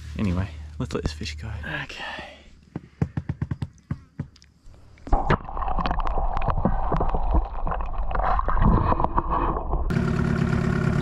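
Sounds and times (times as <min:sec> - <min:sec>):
water sloshing and gurgling: 0:04.5 - 0:09.9.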